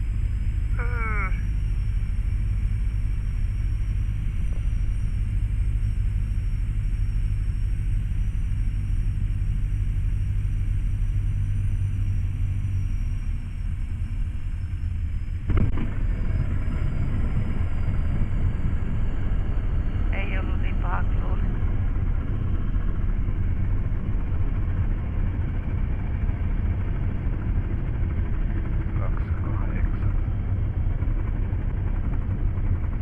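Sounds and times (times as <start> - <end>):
glider engine and propeller drone: 0.0 - 33.0.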